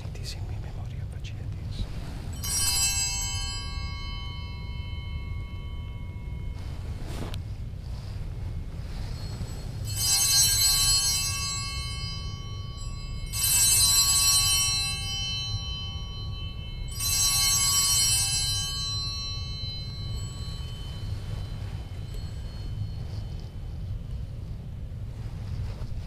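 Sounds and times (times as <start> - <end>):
steady low hum: 0.0 - 26.0
altar bell ringing: 1.9 - 25.8.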